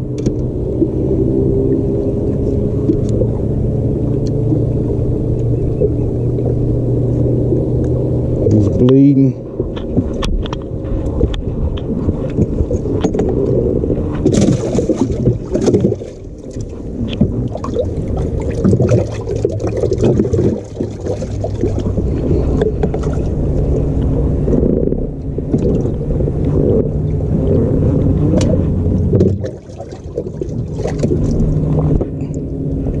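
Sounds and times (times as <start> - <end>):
boat and wind rumble: 0.0 - 33.0
water sloshing and splashing: 0.0 - 33.0.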